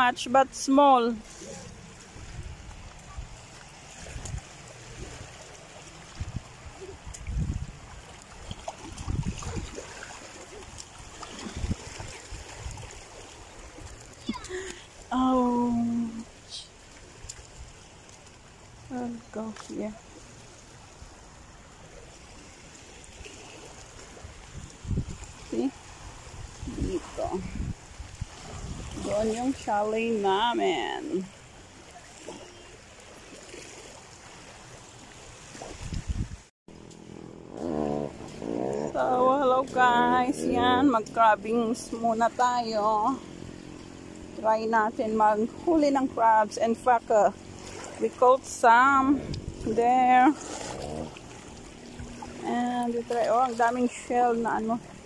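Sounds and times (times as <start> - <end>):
water lapping at shoreline: 0.0 - 55.0
wind buffeting microphone: 6.1 - 8.1, 8.8 - 9.9, 11.0 - 13.0, 24.2 - 29.7, 35.6 - 36.5, 48.9 - 53.1.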